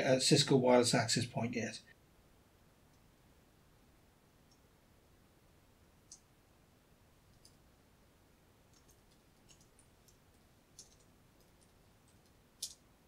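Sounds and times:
keyboard keys tapping: 0:08.7 - 0:12.8.

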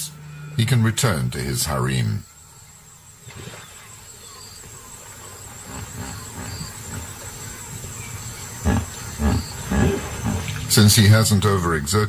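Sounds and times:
hippopotamuses grunting: 0:03.3 - 0:11.2.

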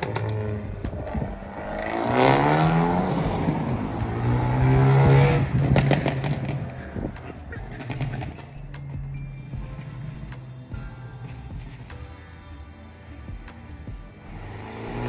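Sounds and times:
exhaust pops and crackles: 0:00.0 - 0:02.4, 0:03.3 - 0:08.4
car engine accelerating: 0:00.0 - 0:12.3, 0:13.1 - 0:15.0.

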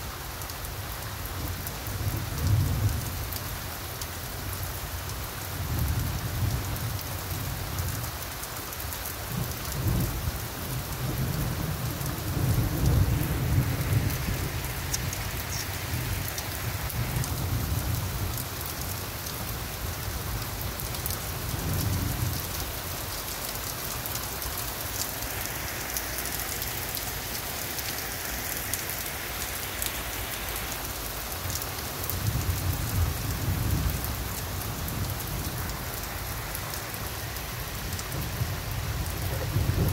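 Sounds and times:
steady rain falling: 0:00.0 - 0:39.9
thunder rolling: 0:11.0 - 0:18.0, 0:39.1 - 0:39.9.

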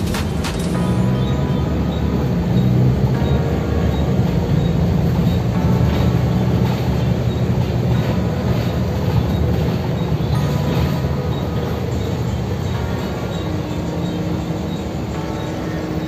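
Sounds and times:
road and tyre noise: 0:00.0 - 0:16.0
vehicle engine drone: 0:00.0 - 0:16.0.

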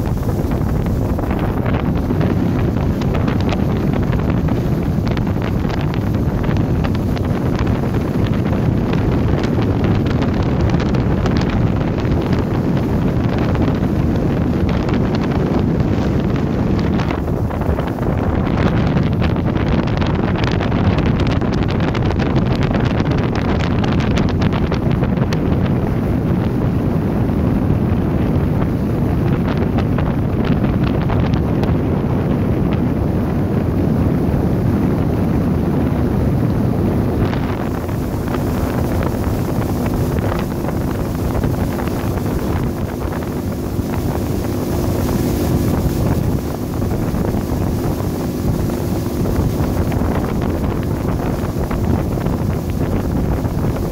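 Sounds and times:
boat motor: 0:00.0 - 0:53.9
water noise: 0:00.0 - 0:53.9
wind buffeting microphone: 0:00.0 - 0:53.9
steady low hum: 0:33.7 - 0:53.9.

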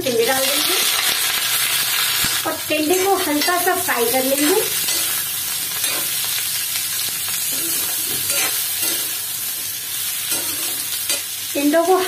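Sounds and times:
vegetables sizzling in oil: 0:00.0 - 0:12.0
metal spatula scraping pan: 0:07.4 - 0:09.2.

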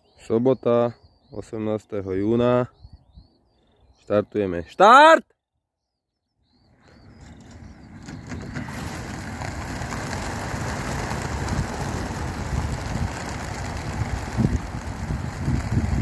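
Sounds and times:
pigeon flock wingbeats: 0:07.0 - 0:16.0.

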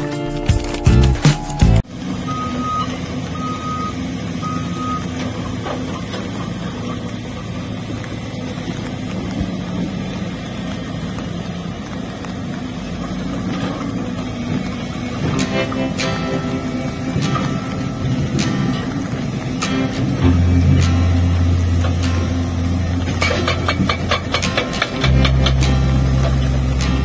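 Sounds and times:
excavator diesel engine running: 0:00.0 - 0:27.0
electronic alarm beeps: 0:01.4 - 0:05.2.

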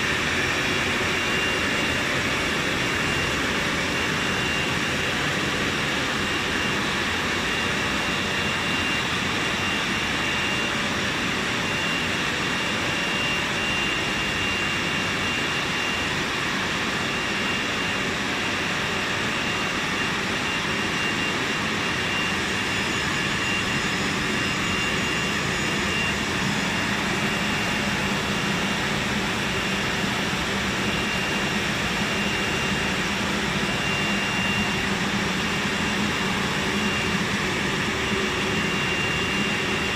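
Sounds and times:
thin high whine: 0:00.0 - 0:39.9.

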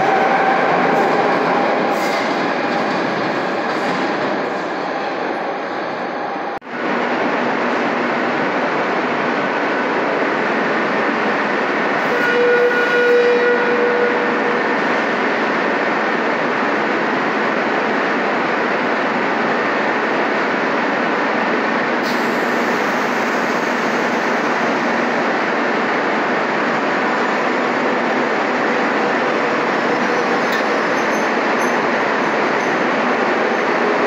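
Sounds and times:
train equipment hiss and hum: 0:00.0 - 0:34.0.

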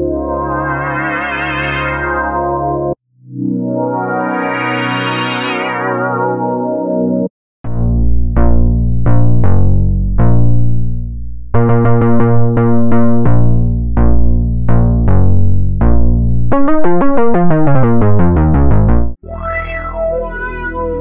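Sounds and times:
synth bass line and chords: 0:00.0 - 0:21.0
synth pluck notes: 0:00.0 - 0:21.0.

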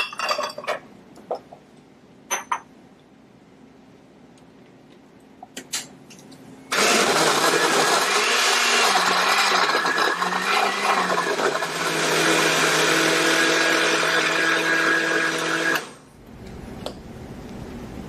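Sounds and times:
blender motor running: 0:06.7 - 0:16.0.

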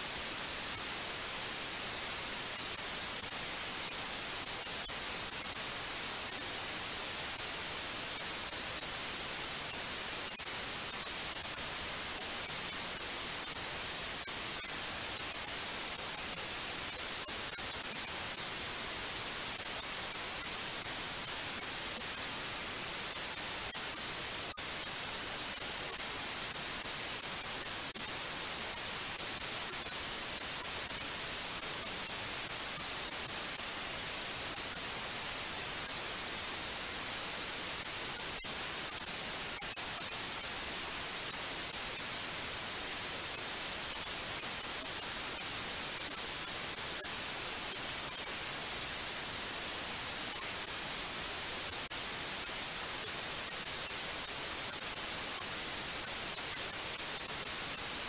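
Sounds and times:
white noise hiss: 0:00.0 - 0:58.0.

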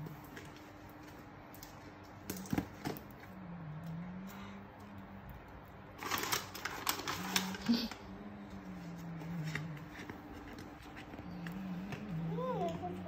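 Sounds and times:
wrapping paper rustling: 0:05.8 - 0:08.1.

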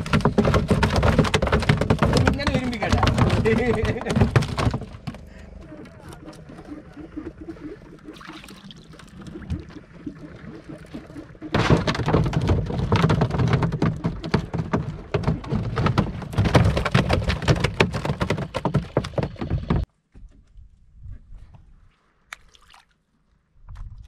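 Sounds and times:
fish thrashing and slapping: 0:00.0 - 0:19.8
faint water sounds: 0:05.2 - 0:11.6, 0:21.8 - 0:24.0.

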